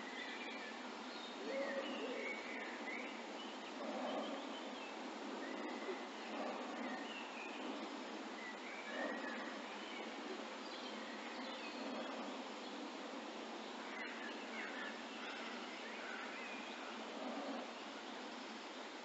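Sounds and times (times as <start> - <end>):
faint bird chirps: 0.0 - 19.0
outdoor background hiss: 0.0 - 19.0.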